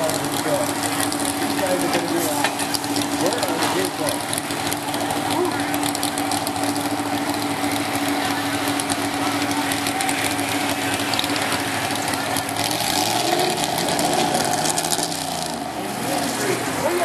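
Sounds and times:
truck engine idling: 0.0s - 17.0s.

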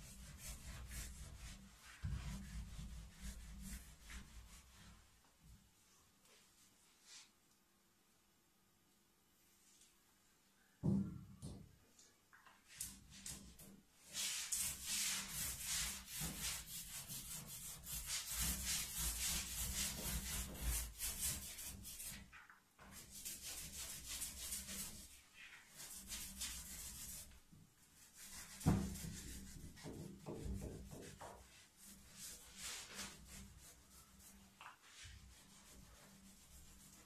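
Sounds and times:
rubbing strokes scrubbing paper: 0.0s - 5.1s, 12.8s - 37.0s.

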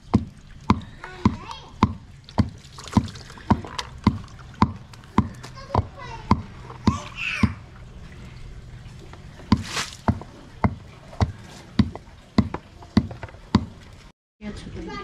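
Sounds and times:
water splashing in a plastic tub: 0.0s - 15.0s
sharp knocks: 0.1s - 7.6s, 9.5s - 13.8s
water poured onto ground: 2.0s - 5.6s, 7.2s - 10.2s.

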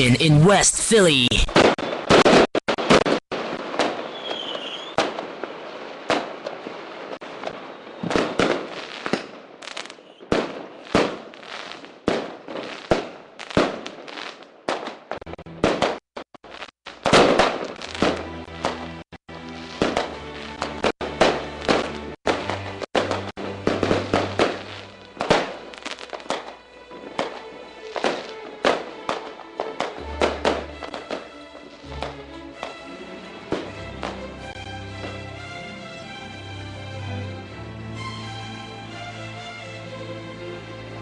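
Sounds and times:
irregular sharp bangs: 1.4s - 19.0s, 19.7s - 35.2s
music: 17.8s - 41.0s.

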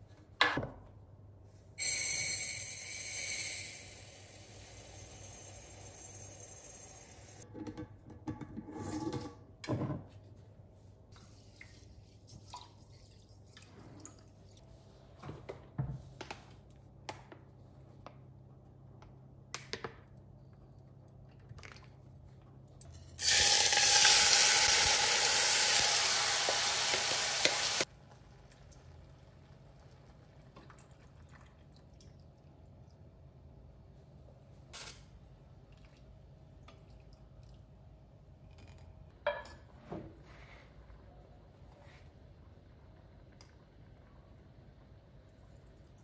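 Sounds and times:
rice sizzling in hot oil: 23.2s - 27.9s.

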